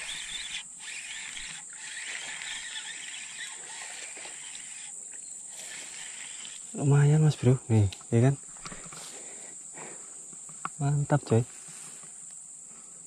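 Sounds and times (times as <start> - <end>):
fishing reel whirring: 0.0 - 6.8
insects buzzing: 0.0 - 13.0.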